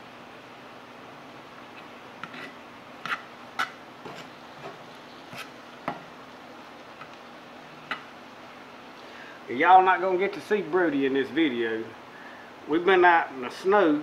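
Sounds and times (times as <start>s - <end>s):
utensil scraping a pan: 1.7s - 6.0s.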